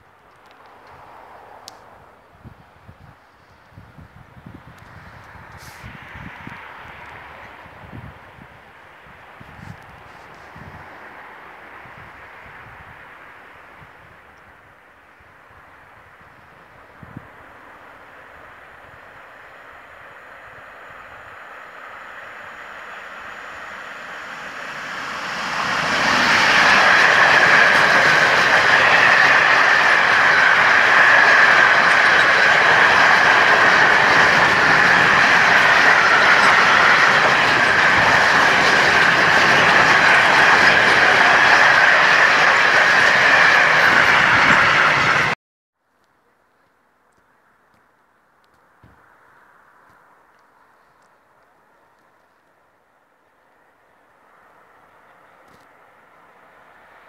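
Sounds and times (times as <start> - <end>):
freight train wheels rumbling: 17.1 - 45.4.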